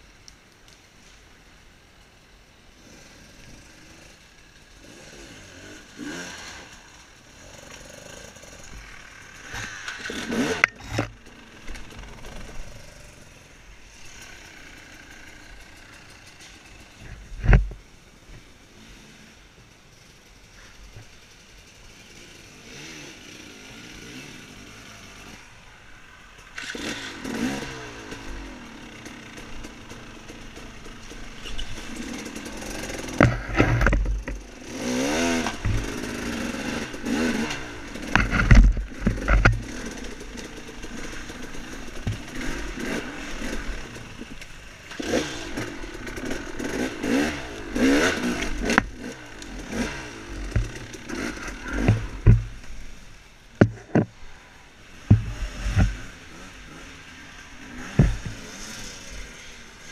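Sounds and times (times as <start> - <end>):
dirt bike engine revving: 2.7 - 17.8, 18.8 - 25.7, 26.5 - 59.9
bike knocks and clatter: 38.1 - 39.8, 50.5 - 52.6, 55.1 - 56.0, 57.8 - 58.4.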